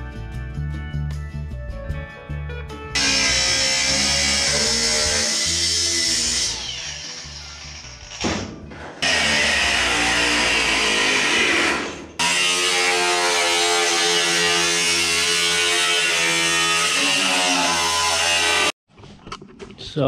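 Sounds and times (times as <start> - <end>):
angle grinder cutting metal: 3.0 - 8.3, 9.0 - 18.8.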